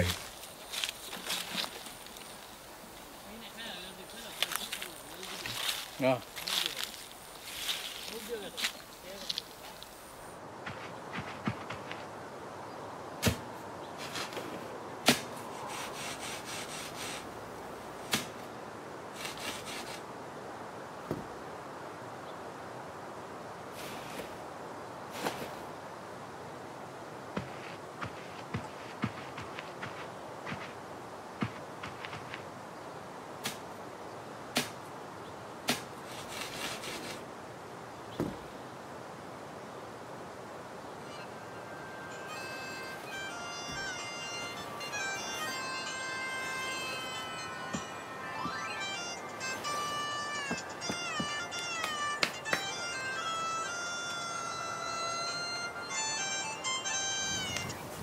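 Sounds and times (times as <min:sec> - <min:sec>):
scratching and scraping soil: 0:00.0 - 0:10.1, 0:14.0 - 0:17.4, 0:19.1 - 0:20.0, 0:23.7 - 0:24.4, 0:25.1 - 0:25.7, 0:27.4 - 0:30.8, 0:35.7 - 0:37.3
stick striking dry soil: 0:13.2 - 0:17.2, 0:18.0 - 0:18.4, 0:27.4 - 0:30.8, 0:31.4 - 0:32.4, 0:33.4 - 0:33.7, 0:34.5 - 0:34.8, 0:35.6 - 0:37.2.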